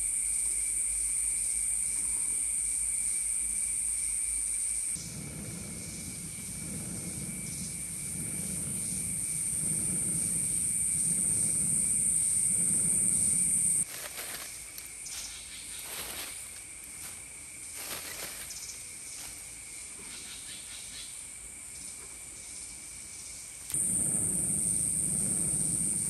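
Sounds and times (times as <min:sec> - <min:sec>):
insects buzzing: 0:00.0 - 0:26.0
hand-cranked blower rushing air: 0:23.7 - 0:26.0.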